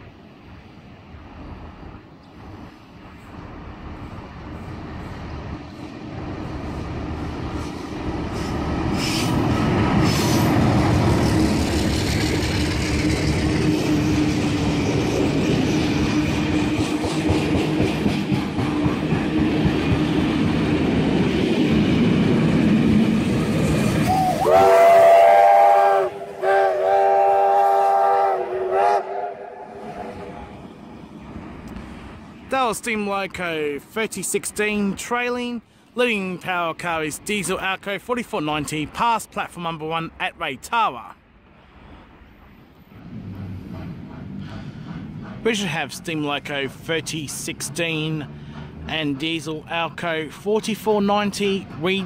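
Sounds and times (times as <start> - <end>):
train rumbling past: 0.0 - 52.0
steam locomotive chime whistle: 24.0 - 30.4.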